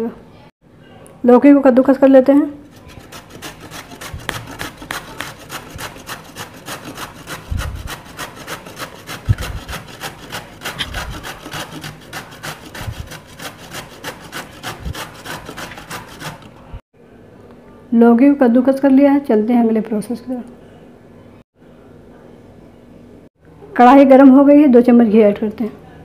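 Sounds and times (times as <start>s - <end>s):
gourd rasping on a grater: 2.6s - 16.8s.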